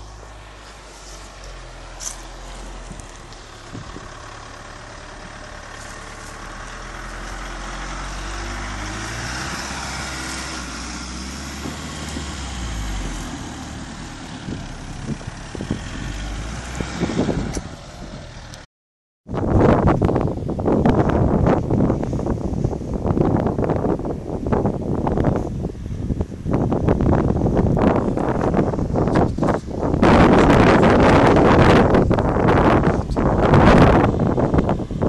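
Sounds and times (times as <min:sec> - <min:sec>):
wind on microphone: 0:00.0 - 0:04.6, 0:05.2 - 0:18.4, 0:19.3 - 0:35.0
tyres crackling on snowy gravel: 0:00.0 - 0:16.7
pickup truck engine at low revs: 0:00.0 - 0:18.6, 0:19.4 - 0:35.0.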